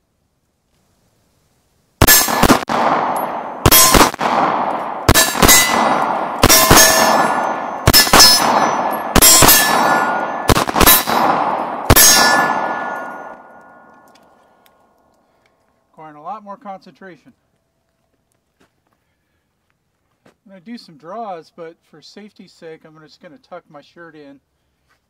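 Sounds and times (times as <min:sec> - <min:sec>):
pistol shots: 0:02.0 - 0:14.1
steel plates ringing: 0:03.2 - 0:04.1, 0:05.1 - 0:13.9.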